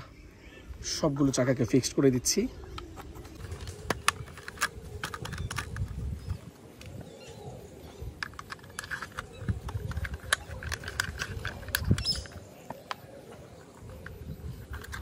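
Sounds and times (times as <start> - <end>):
plastic clicks and taps: 2.7 - 6.0, 8.2 - 13.0.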